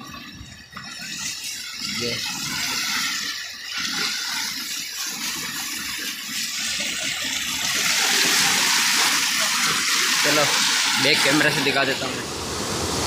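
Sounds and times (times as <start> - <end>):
river rushing in flood: 7.5 - 13.0.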